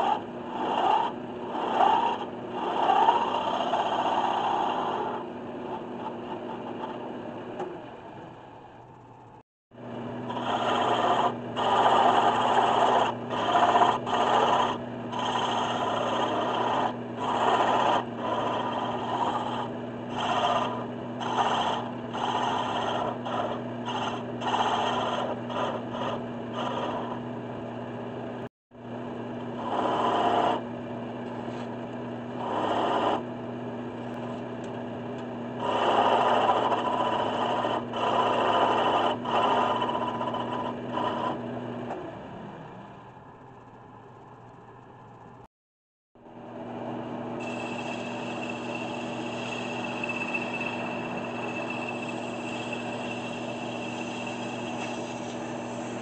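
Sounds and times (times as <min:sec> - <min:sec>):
turning tool cutting wood: 0:00.0 - 0:07.7, 0:10.0 - 0:27.4, 0:29.3 - 0:42.0, 0:47.3 - 0:56.0
wood lathe humming: 0:10.0 - 0:27.4, 0:31.2 - 0:33.4, 0:35.2 - 0:41.6, 0:46.8 - 0:56.0.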